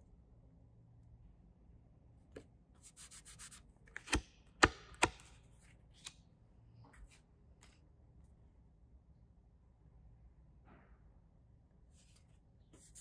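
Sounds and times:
cards sliding against each other: 2.9 - 6.2.

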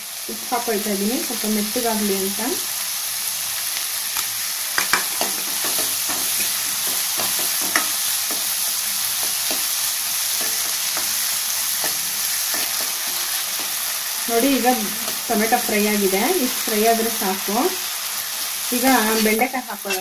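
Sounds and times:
vegetables sizzling in a pan: 0.0 - 20.0.

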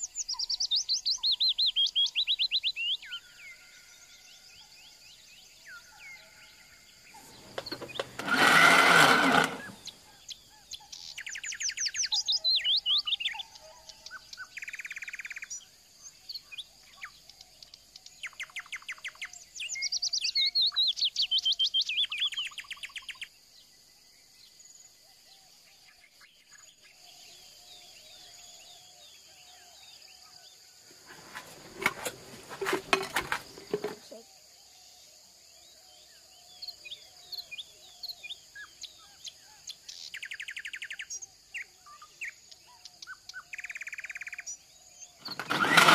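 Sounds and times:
songbirds trilling: 5.5 - 13.3, 36.0 - 45.9
faint high-pitched insect drone: 9.8 - 30.8, 34.0 - 45.3.

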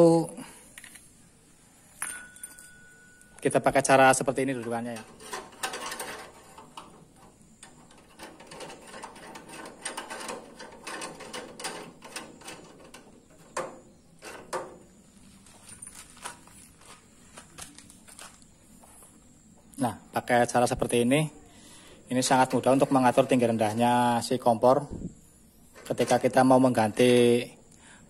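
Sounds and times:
metal pipe clinking and scraping: 2.0 - 16.4
metal knocks: 4.6 - 15.0.

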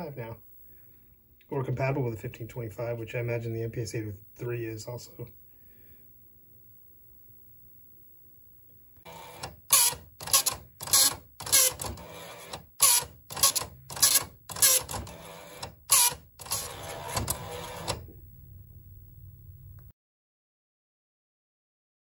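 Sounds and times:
dot-matrix printer printing: 9.1 - 18.1.

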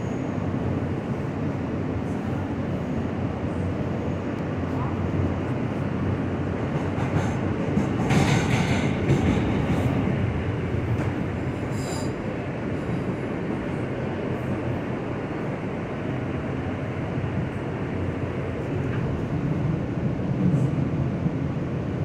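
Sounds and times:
subway car rumbling on rails: 0.0 - 22.0
high wheel squeal: 11.7 - 12.2.

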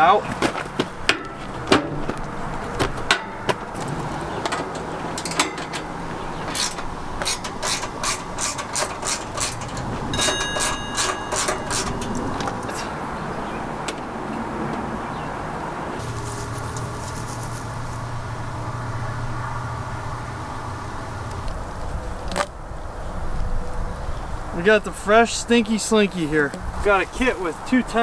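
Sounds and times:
footsteps crunching on gravel: 0.2 - 4.4, 16.0 - 18.1.

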